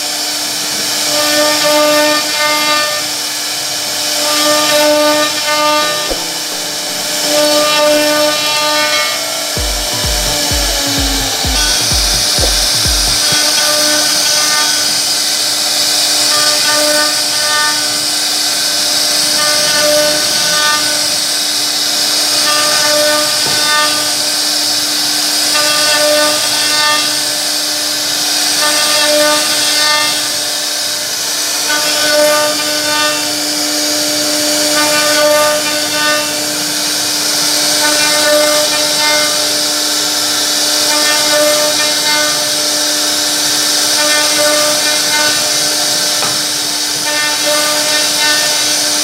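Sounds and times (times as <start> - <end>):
router spindle whine carving wood: 0.0 - 49.0.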